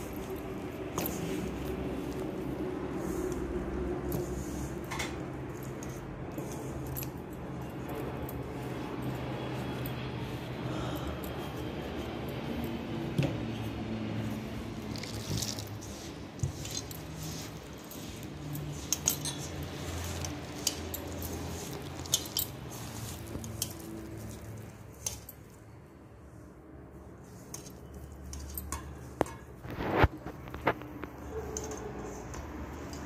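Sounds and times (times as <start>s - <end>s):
hand squeezing dough in bowl: 0.0s - 25.7s.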